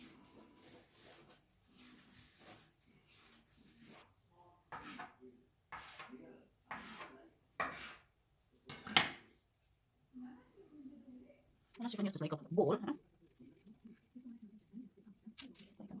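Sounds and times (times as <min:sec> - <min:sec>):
dough rolled on a countertop: 0:00.0 - 0:04.1, 0:04.7 - 0:08.1.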